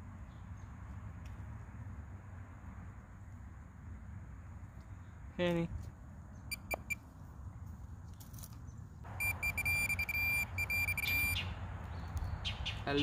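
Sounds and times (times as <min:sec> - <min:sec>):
pinpointer beeping: 0:06.5 - 0:07.0, 0:09.1 - 0:11.4
dirt scraping rustle: 0:07.0 - 0:09.1.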